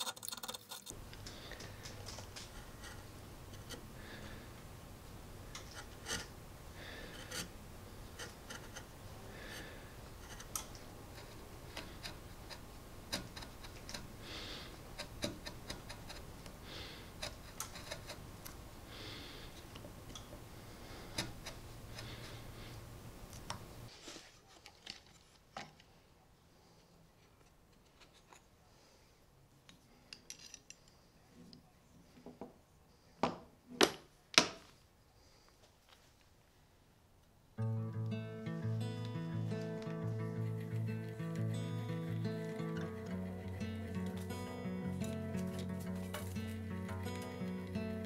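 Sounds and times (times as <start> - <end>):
chisel scraping wood: 0.0 - 1.0, 1.9 - 4.3, 5.6 - 18.5, 20.8 - 22.8.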